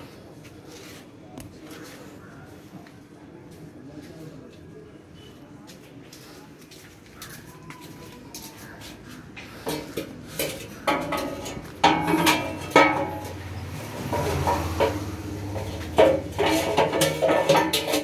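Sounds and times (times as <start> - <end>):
metal tools clanking: 9.7 - 18.0.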